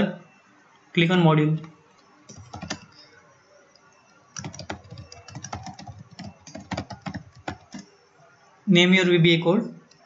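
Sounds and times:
typing on keyboard: 2.3 - 3.1, 3.7 - 7.9.

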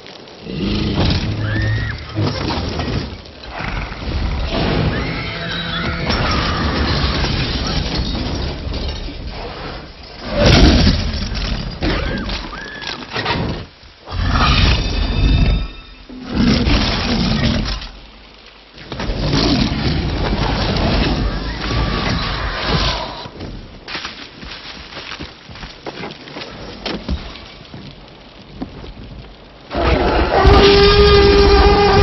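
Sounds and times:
glass breaking: 6.0 - 9.3
dinosaur roaring and growling: 29.7 - 32.0.

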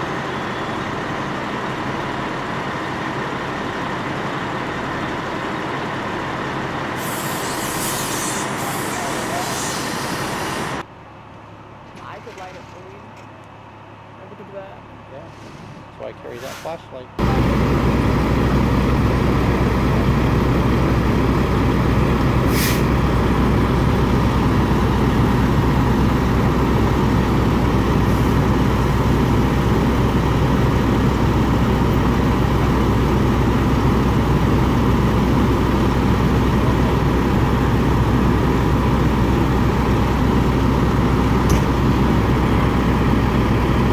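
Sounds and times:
diesel engine rumble: 0.0 - 43.9
air hiss: 7.0 - 10.8, 22.5 - 22.9.

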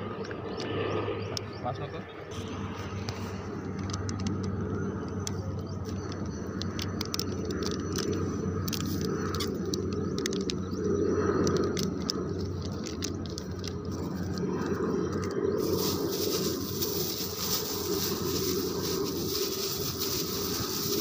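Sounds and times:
steady low hum: 0.0 - 21.0
plastic packet crinkling: 11.7 - 14.8, 15.6 - 21.0.

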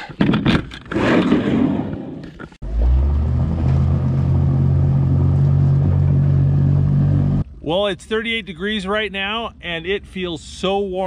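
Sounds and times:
boat motor humming: 2.6 - 10.6.

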